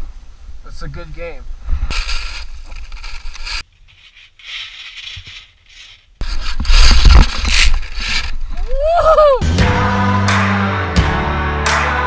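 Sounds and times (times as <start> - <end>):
skis scraping on snow: 1.9 - 8.4.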